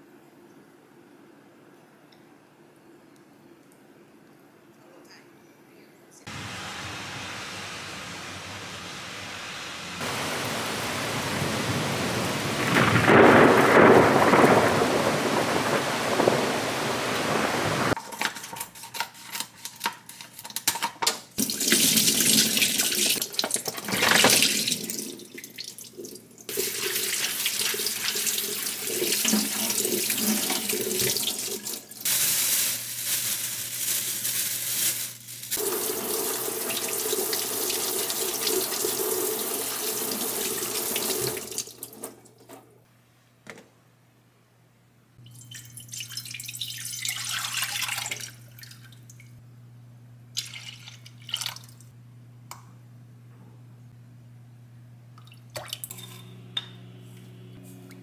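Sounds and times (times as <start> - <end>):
loud rumble: 6.3 - 18.0
steady rain pouring: 6.3 - 18.0, 35.5 - 41.6.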